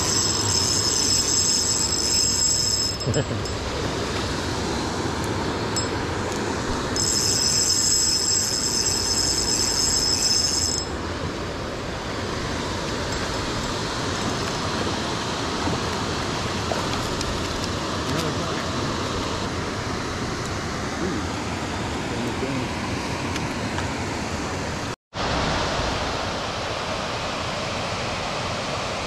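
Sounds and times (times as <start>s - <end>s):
high-pitched whine: 0.0s - 4.3s
stream water flowing: 0.0s - 29.0s.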